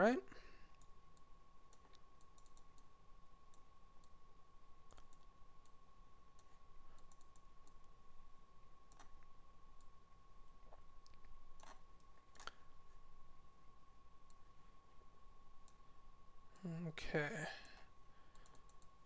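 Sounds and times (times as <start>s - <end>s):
faint steady tone: 0.0s - 19.0s
computer mouse clicks: 0.7s - 4.2s, 4.9s - 8.0s, 8.8s - 10.0s, 10.7s - 12.6s, 14.2s - 14.5s, 17.6s - 19.0s.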